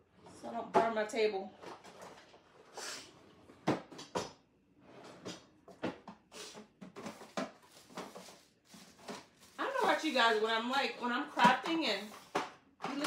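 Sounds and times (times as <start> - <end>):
items knocking and clacking: 5.2 - 10.3, 11.1 - 13.0.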